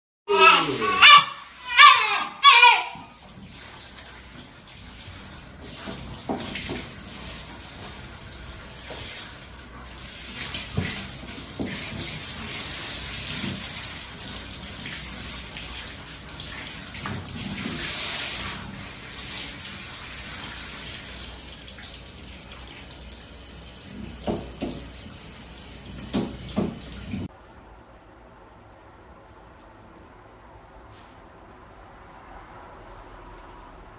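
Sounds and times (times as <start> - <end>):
shower water spraying: 0.3 - 27.3.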